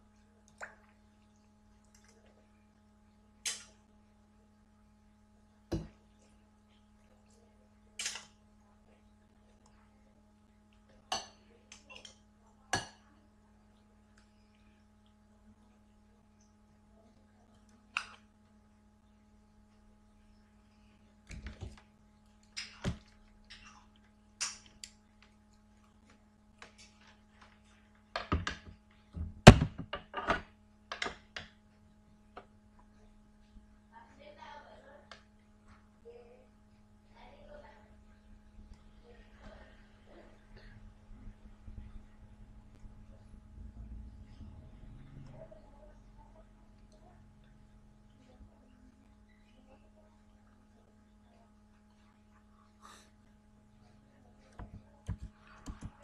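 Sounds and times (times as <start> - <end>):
steady low hum: 0.0 - 56.0
objects handled at a desk: 54.6 - 56.0.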